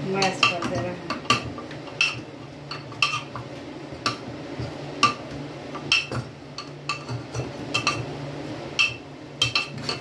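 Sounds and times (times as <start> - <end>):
metal utensil clinking in pot: 0.1 - 3.4, 5.8 - 8.1, 8.8 - 10.0.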